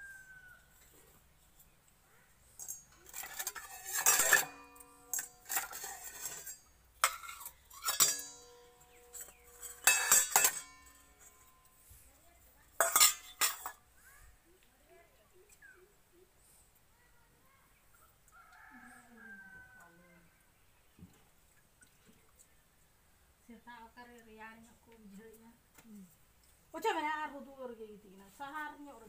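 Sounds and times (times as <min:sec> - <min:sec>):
metal bowls clanking: 0:02.6 - 0:11.8, 0:12.7 - 0:13.9.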